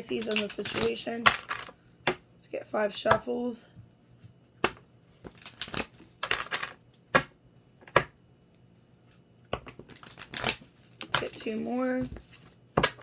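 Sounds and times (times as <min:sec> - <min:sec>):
cards being shuffled: 0:00.0 - 0:01.7, 0:05.2 - 0:06.7, 0:09.6 - 0:13.0.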